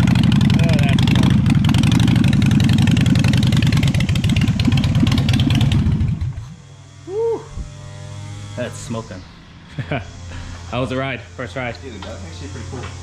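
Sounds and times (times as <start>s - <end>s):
loud motorcycle engine running: 0.0s - 13.0s
faint hum: 6.6s - 12.6s.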